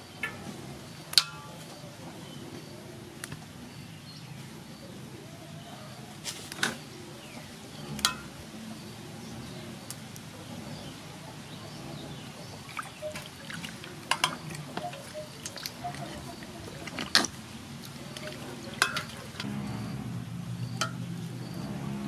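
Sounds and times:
water sloshing in metal basin: 0:07.8 - 0:08.4, 0:12.5 - 0:20.0, 0:20.6 - 0:21.3.

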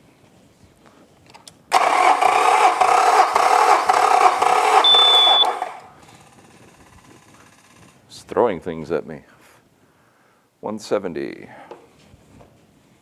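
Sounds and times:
starter cranking engine: 0:01.7 - 0:08.0.

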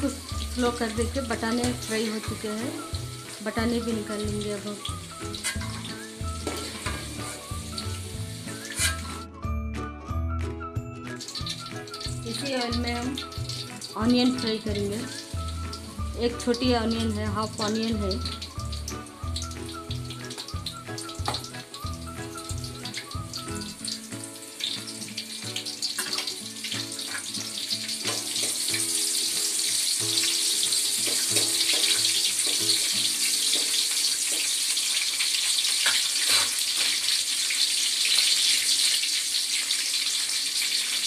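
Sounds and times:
onion sizzling in hot oil: 0:00.0 - 0:09.5, 0:10.8 - 0:41.0
knocks in the pan: 0:06.4 - 0:07.2, 0:21.3 - 0:21.5, 0:25.9 - 0:26.3, 0:28.0 - 0:28.9, 0:31.0 - 0:32.9.

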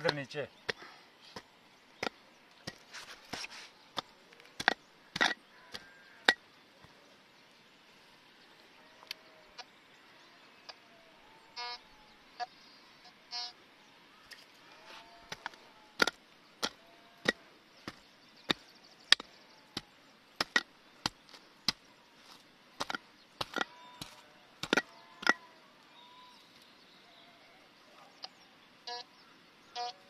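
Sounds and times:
pick chopping into soil: 0:15.3 - 0:25.4
metal detector beep: 0:29.8 - 0:30.0.

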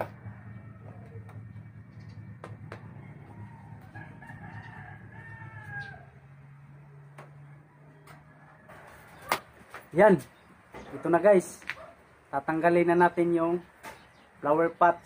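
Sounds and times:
rooster crowing: 0:00.0 - 0:01.6, 0:02.7 - 0:09.3
steady low hum: 0:00.0 - 0:07.9.

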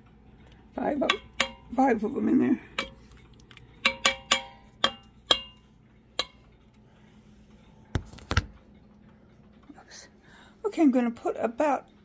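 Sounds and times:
metal utensil clinking on pot: 0:00.8 - 0:03.1, 0:03.7 - 0:06.5.

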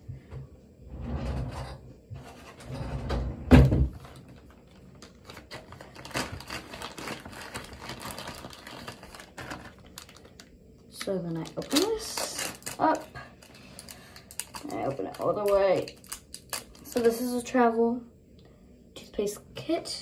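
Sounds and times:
plastic pouch crinkling: 0:04.0 - 0:17.3.

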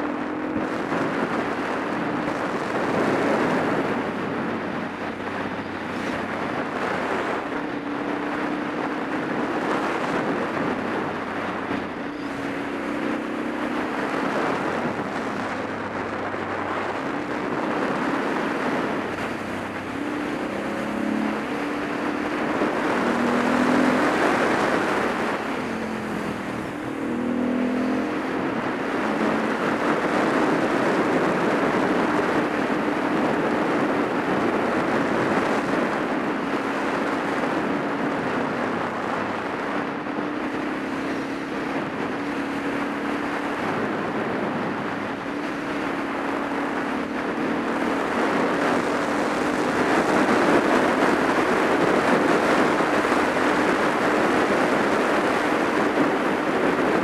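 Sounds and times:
motorcycle engine revving: 0:00.0 - 0:57.0
wind and road noise: 0:00.0 - 0:57.0.

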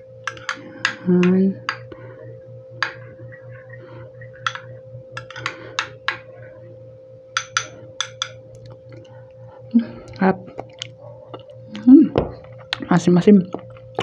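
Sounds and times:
steady low hum: 0:00.0 - 0:14.0
spoon scraping glass bowl: 0:04.4 - 0:06.0.

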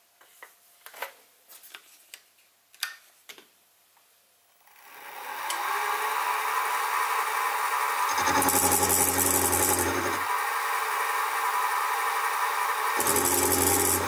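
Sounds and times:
mill motor winding up and running: 0:04.4 - 0:14.0.

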